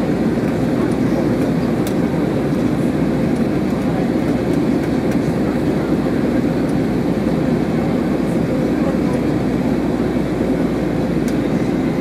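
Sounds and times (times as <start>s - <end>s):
airplane cabin engine hum: 0.0s - 12.0s.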